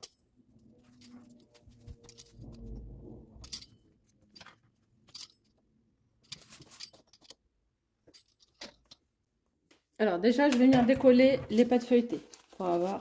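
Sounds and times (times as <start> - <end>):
metal bangles clinking: 0.0 - 9.1.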